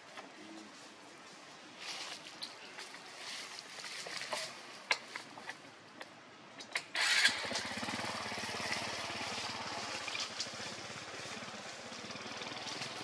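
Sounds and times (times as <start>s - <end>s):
small engine running: 7.0s - 13.0s.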